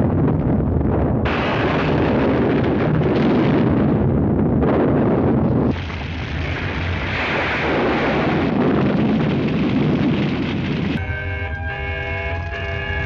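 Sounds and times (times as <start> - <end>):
explosions and crashing destruction: 0.0 - 11.0.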